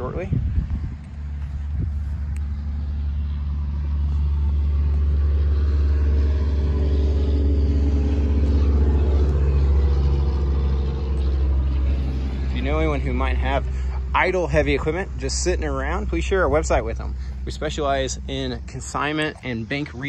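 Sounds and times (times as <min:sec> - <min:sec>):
bulldozer diesel engine running: 0:00.0 - 0:20.0.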